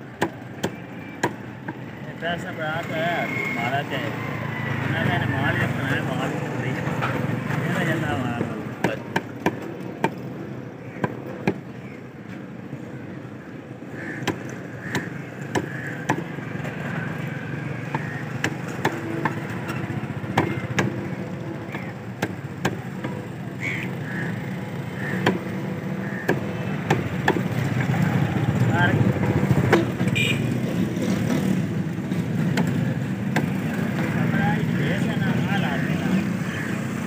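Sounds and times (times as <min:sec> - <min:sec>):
background traffic: 0:00.0 - 0:37.0
cleaver chopping on wooden block: 0:14.2 - 0:16.3, 0:17.8 - 0:19.5, 0:21.7 - 0:23.1, 0:25.2 - 0:25.5, 0:26.2 - 0:27.5, 0:32.5 - 0:33.6.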